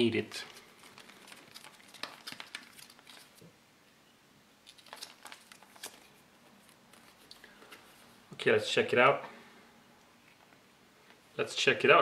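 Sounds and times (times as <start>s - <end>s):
foil pouch crinkling: 0.4s - 3.5s, 4.6s - 7.5s.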